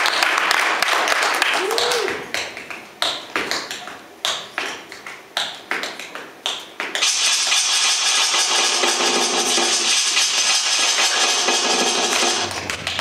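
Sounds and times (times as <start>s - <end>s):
music: 7.0s - 13.0s.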